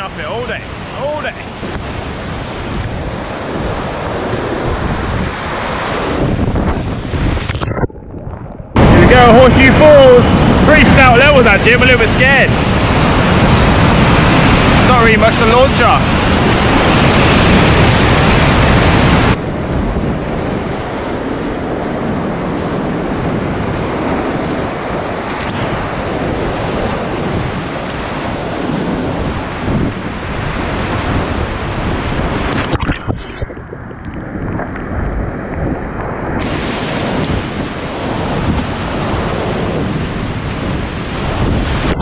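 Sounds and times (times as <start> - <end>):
whitewater rushing: 0.0 - 7.6, 8.8 - 19.4, 36.4 - 42.0.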